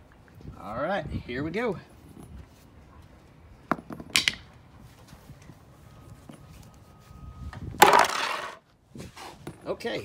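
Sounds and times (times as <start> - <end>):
low wind rumble: 0.0 - 3.7.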